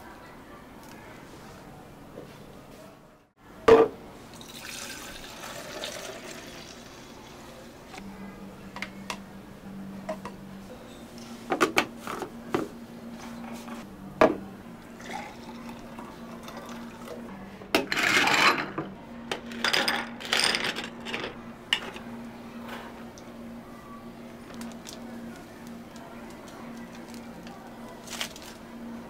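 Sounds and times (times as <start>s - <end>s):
low machine hum: 0.0s - 29.0s
cups and utensils clinking: 15.0s - 22.1s.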